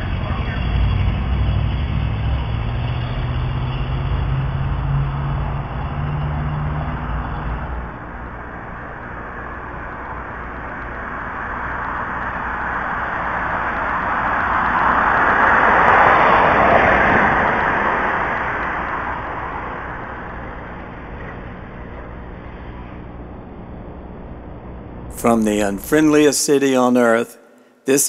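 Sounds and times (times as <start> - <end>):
car passing at speed: 0.0 - 9.5, 11.2 - 21.0
low droning vehicle hum: 0.0 - 28.0.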